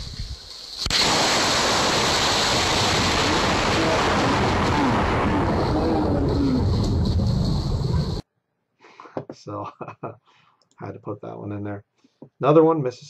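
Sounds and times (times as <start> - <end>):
rushing storm noise: 0.0 - 8.2.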